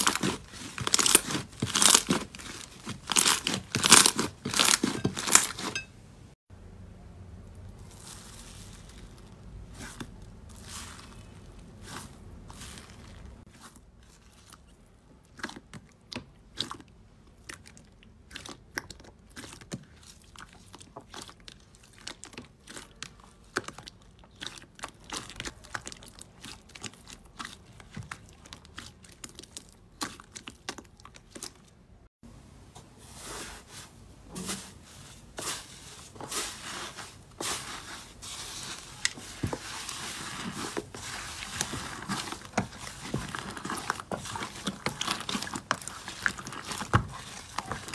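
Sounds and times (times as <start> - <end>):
slime crackling and popping: 0.0 - 5.6, 39.0 - 47.9.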